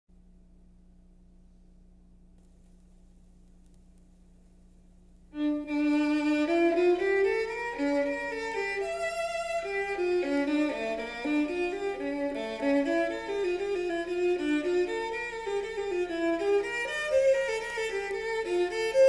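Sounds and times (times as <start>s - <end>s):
faint steady hum: 0.1s - 19.0s
violin music over loudspeaker: 5.4s - 19.0s.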